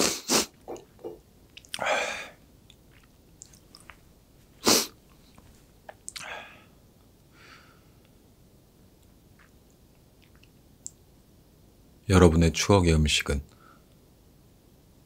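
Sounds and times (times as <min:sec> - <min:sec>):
man sniffling: 0:00.0 - 0:00.6, 0:04.6 - 0:05.0.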